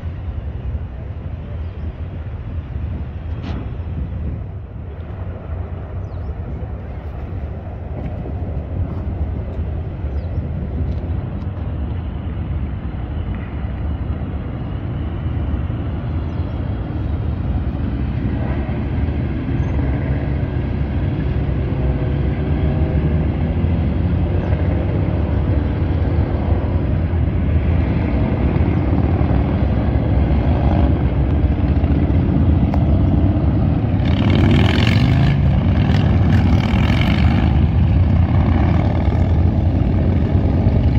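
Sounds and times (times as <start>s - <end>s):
loud rush of noise: 0.0s - 40.9s
motorcycle engines rumbling: 0.0s - 40.9s.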